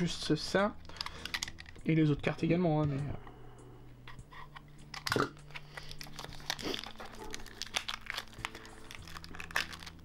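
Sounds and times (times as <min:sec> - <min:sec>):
plastic shrink-wrap crinkling: 0:05.5 - 0:10.0.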